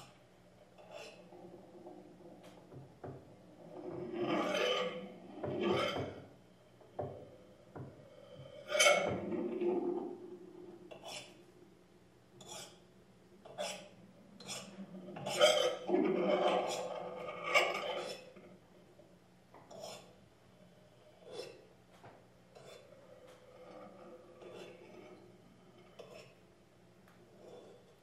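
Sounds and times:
objects rubbing and scraping: 0:00.0 - 0:11.5, 0:13.5 - 0:18.7, 0:22.5 - 0:26.4
faint steady hum: 0:00.0 - 0:28.0.

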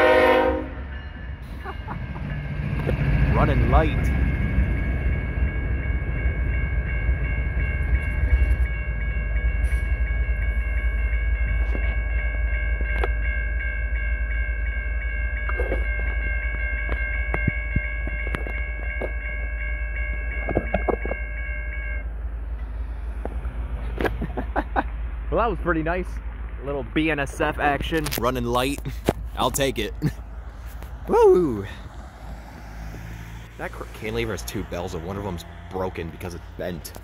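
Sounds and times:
railroad crossing bells ringing: 0:00.0 - 0:23.2, 0:27.0 - 0:37.0
low rumble: 0:22.0 - 0:37.0.

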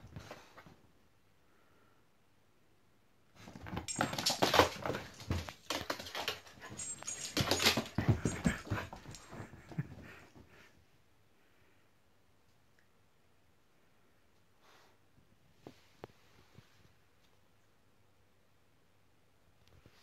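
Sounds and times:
scuffling: 0:03.4 - 0:10.3
dogs playing noises: 0:03.4 - 0:10.6.

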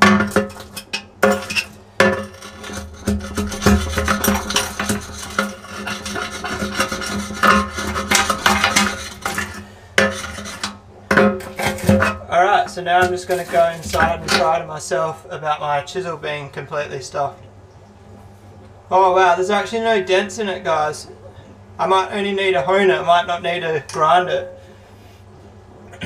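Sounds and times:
chisel scraping on glass: 0:00.4 - 0:10.8.

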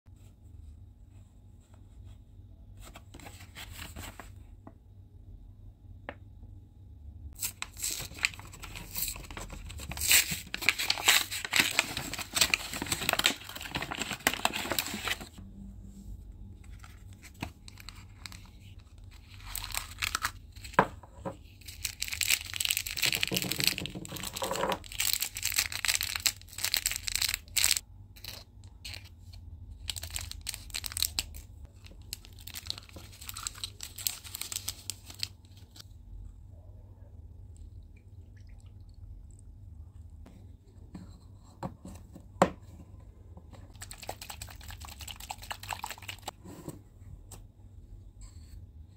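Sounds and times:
plastic packaging crinkling: 0:07.4 - 0:15.4, 0:16.7 - 0:20.8, 0:21.4 - 0:29.1, 0:29.8 - 0:35.8.

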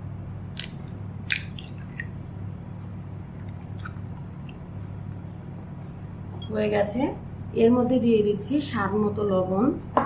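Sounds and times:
eggshell cracking: 0:00.5 - 0:02.1, 0:03.4 - 0:04.3.

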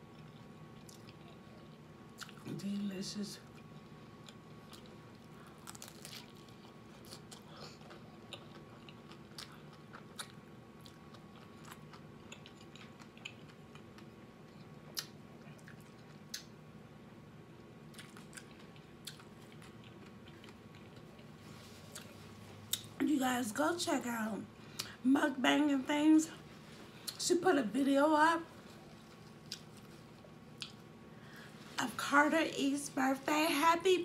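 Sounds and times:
faint steady hum: 0:00.0 - 0:34.0
chewing: 0:00.1 - 0:02.4, 0:03.5 - 0:16.5, 0:17.9 - 0:22.9, 0:28.6 - 0:30.8
taco shell crunching: 0:04.2 - 0:14.1.

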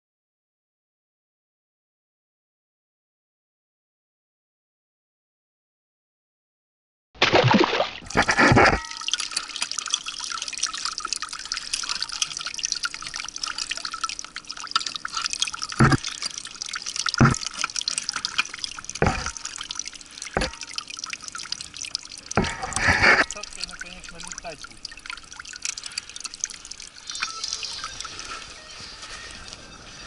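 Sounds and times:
water dripping and trickling: 0:07.3 - 0:30.0.

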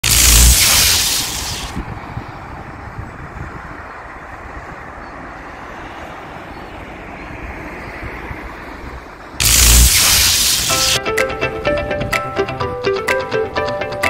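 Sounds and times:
loud transition hiss: 0:00.0 - 0:01.8, 0:09.4 - 0:11.0
highway traffic rumble: 0:00.0 - 0:12.1.

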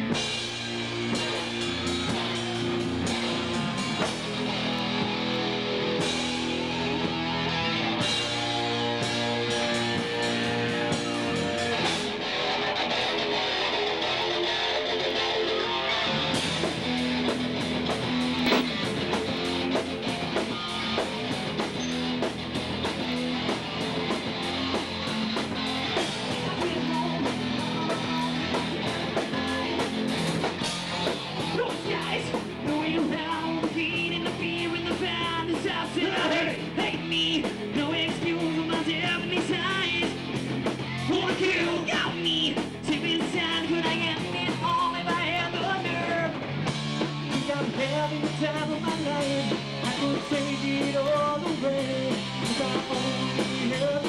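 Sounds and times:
bass guitar: 0:00.0 - 0:54.0
drums with fast beat: 0:00.0 - 0:54.0
electric guitar: 0:00.0 - 0:54.0
person singing: 0:26.3 - 0:30.0, 0:47.3 - 0:54.0.

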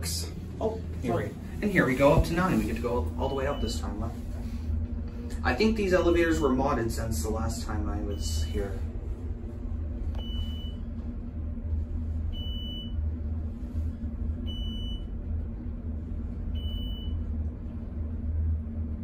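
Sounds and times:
elevator car rumble and hum: 0:00.0 - 0:19.0.

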